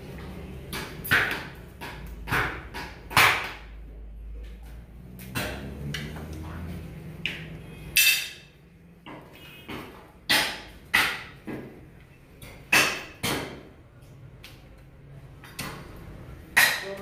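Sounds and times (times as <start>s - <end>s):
cleaver chopping on wooden block: 0.7s - 3.6s, 9.7s - 11.7s, 12.4s - 13.7s.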